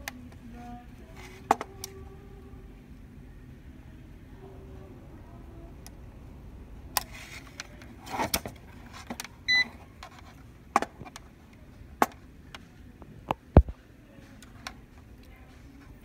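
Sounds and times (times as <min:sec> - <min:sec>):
multimeter short high beep: 0:09.5 - 0:09.7.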